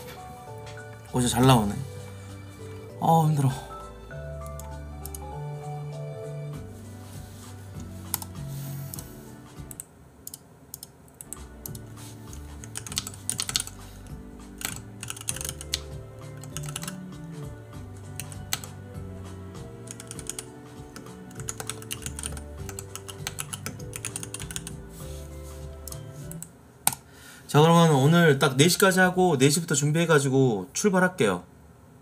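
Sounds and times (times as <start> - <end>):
soft background music: 0.0 - 31.4.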